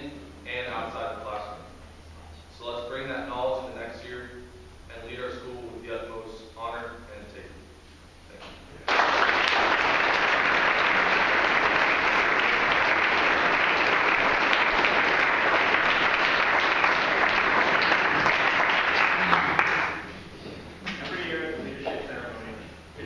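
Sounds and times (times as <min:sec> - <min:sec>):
audience applauding: 0:08.9 - 0:20.2.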